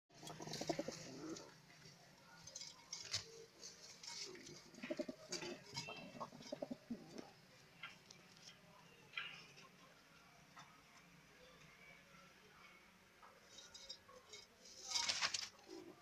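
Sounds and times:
pigeons cooing: 0:00.2 - 0:01.6, 0:04.1 - 0:07.4.

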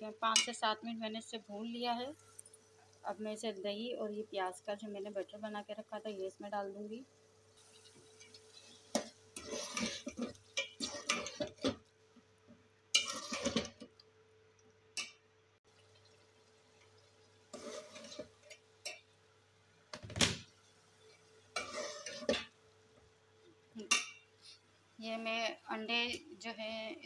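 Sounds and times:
metal spoon scraping metal pot: 0:08.6 - 0:11.7, 0:13.0 - 0:13.8, 0:17.5 - 0:18.4, 0:21.6 - 0:22.5.

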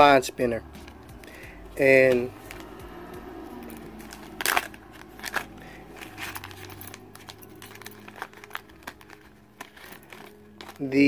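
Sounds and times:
plastic packaging crinkling: 0:03.6 - 0:11.0.

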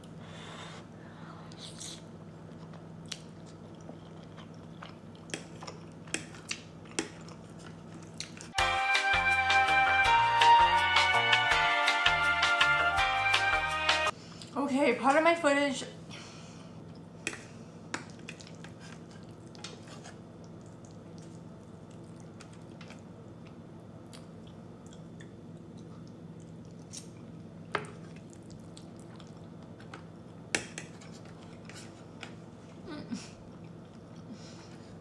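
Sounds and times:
soft wet chewing: 0:01.5 - 0:08.6, 0:18.0 - 0:30.0.

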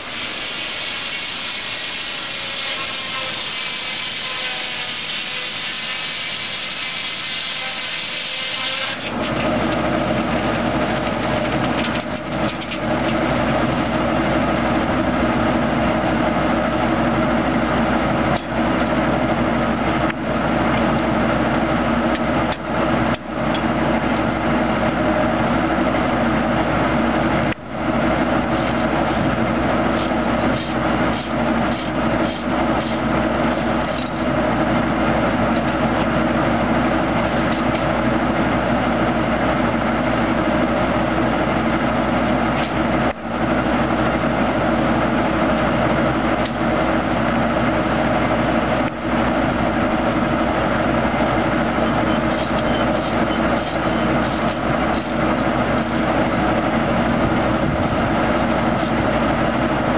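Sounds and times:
circular saw cutting log: 0:00.0 - 0:09.6, 0:29.9 - 0:34.3
tractor engine running: 0:08.6 - 0:59.9.

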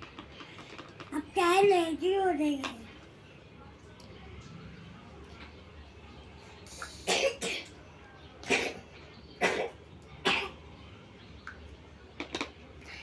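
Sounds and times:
child coughing: 0:07.0 - 0:07.7, 0:08.5 - 0:08.8, 0:09.4 - 0:10.6.

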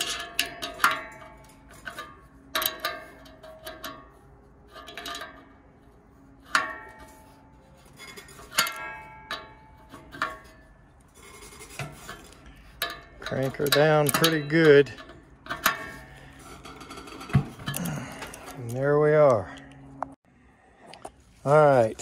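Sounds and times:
wrench clinking on nut: 0:00.0 - 0:05.5, 0:12.0 - 0:18.8
metal fan blade ringing: 0:00.0 - 0:19.8.

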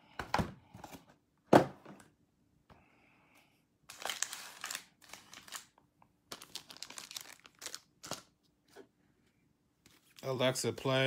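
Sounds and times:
card pack wrapper crinkling: 0:03.9 - 0:08.3.

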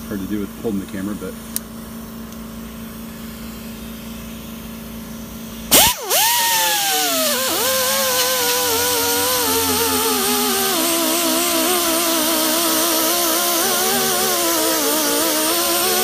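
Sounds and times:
air die grinder whining on metal: 0:05.7 - 0:16.0.

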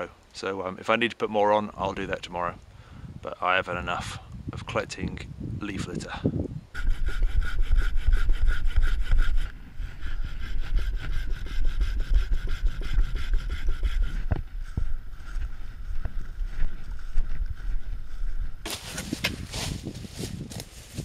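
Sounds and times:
saw cutting wood: 0:06.8 - 0:14.4.

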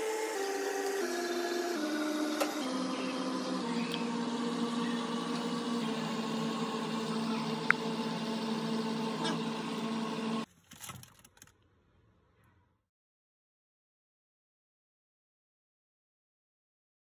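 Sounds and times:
machine hum: 0:00.0 - 0:10.5.

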